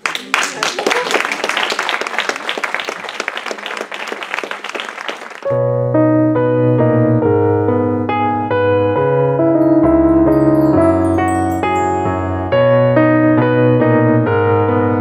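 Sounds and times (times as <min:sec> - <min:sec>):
audience applauding: 0:00.0 - 0:05.5
piano playing held chords: 0:05.6 - 0:15.0.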